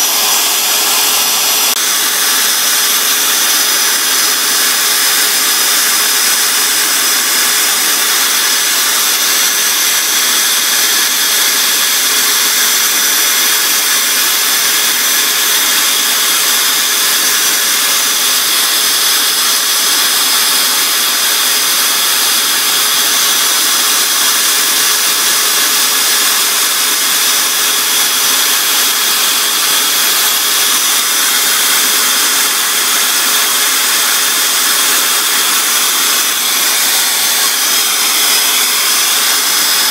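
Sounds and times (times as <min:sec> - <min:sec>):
small power tool motor whining: 0:00.0 - 0:39.9
sandpaper hissing on cork: 0:27.3 - 0:39.9.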